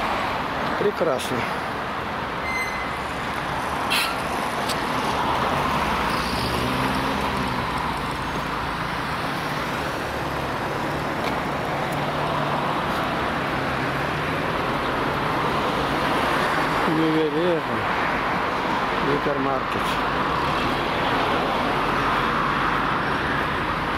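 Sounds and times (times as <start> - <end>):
road traffic: 0.0 - 23.9.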